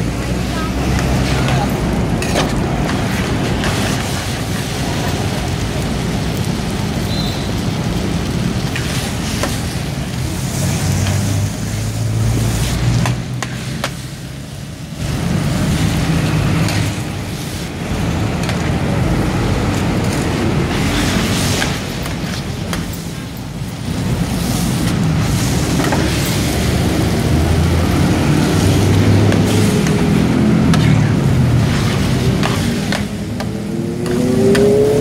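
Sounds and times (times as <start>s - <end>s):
low rumble of traffic: 0.0s - 35.0s
metal spatulas scraping a wok: 2.2s - 4.7s.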